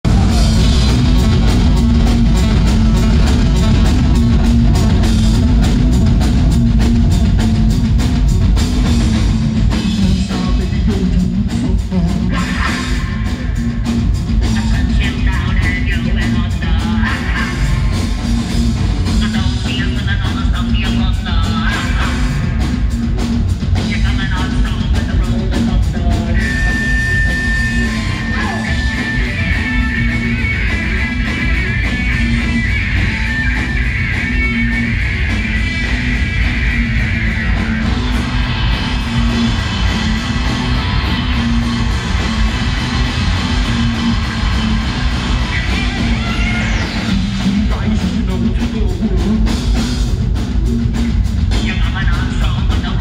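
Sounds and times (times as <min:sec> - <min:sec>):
drums hammering fast beat: 0:00.0 - 0:53.0
rock band playing loud: 0:00.0 - 0:53.0
person singing: 0:09.7 - 0:18.1, 0:19.1 - 0:22.7, 0:23.8 - 0:49.7.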